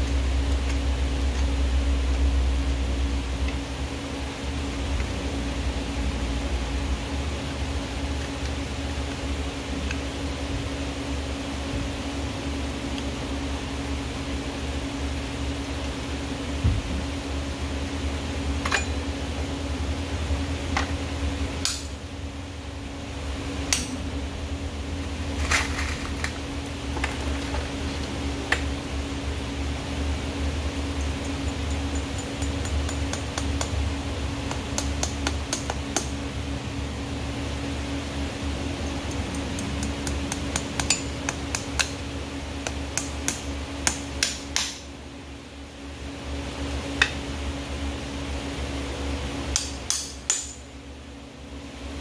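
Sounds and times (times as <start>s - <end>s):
steady low hum: 0.0s - 52.0s
hammer tapping on horseshoe nails: 30.8s - 33.8s, 34.4s - 36.2s, 39.0s - 42.0s, 42.6s - 44.8s.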